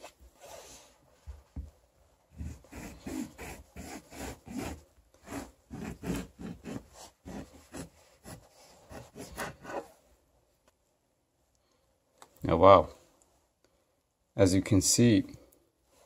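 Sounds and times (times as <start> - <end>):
knife sawing through orange: 2.4 - 9.9.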